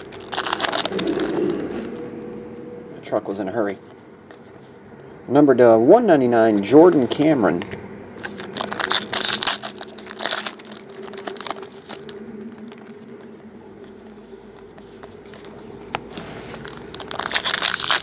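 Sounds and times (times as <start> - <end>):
foil packs tearing and crinkling: 0.0 - 1.8, 8.2 - 13.0, 16.6 - 18.0.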